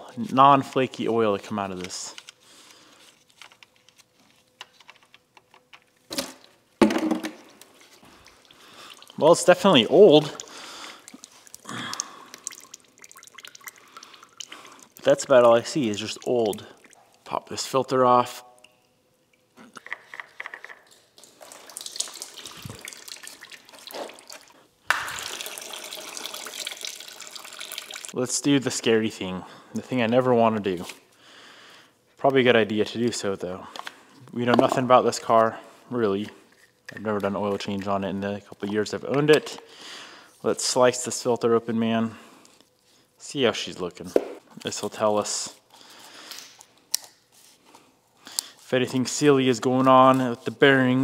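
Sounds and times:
oil pouring: 0:07.4 - 0:17.7, 0:21.1 - 0:28.2
oil gushing into bucket: 0:21.2 - 0:28.2.

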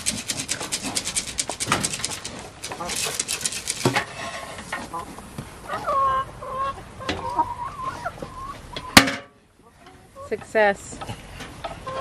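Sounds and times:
pig crunching and snuffling: 0:00.0 - 0:04.5
chickens clucking: 0:00.0 - 0:12.0.

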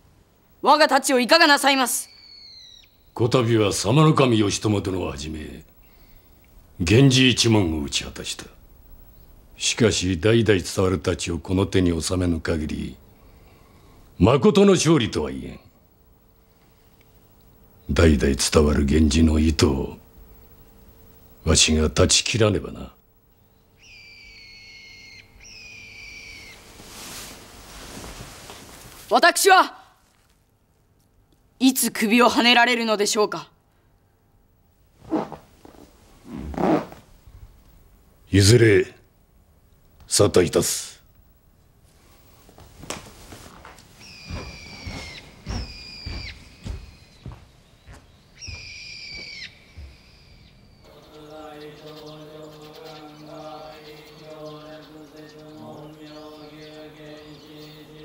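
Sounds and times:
bird whistled calls: 0:02.0 - 0:03.1, 0:23.8 - 0:26.7, 0:44.0 - 0:47.3, 0:47.9 - 0:50.8.

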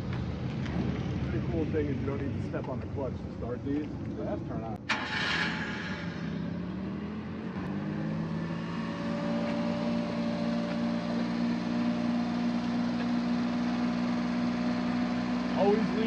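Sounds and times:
small truck engine idling: 0:09.4 - 0:16.0.

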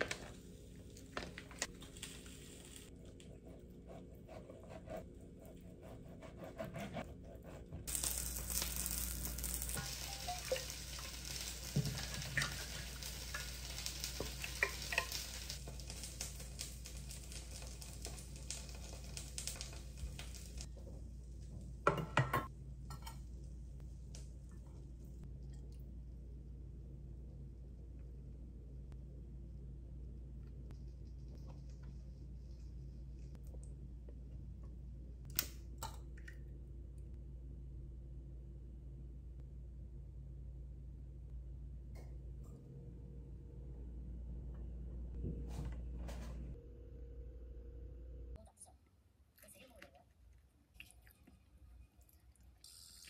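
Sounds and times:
food sizzling: 0:07.9 - 0:20.7, 0:52.6 - 0:53.0.

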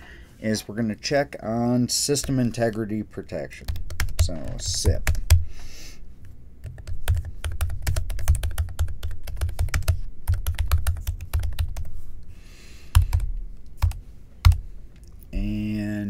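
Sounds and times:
typing on computer keyboard: 0:03.7 - 0:05.4, 0:06.6 - 0:11.9, 0:12.9 - 0:14.6.

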